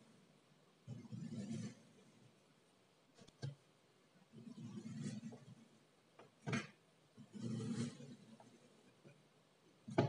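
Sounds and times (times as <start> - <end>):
knife cutting kinetic sand: 0.9 - 2.0, 4.3 - 5.6, 6.4 - 8.6.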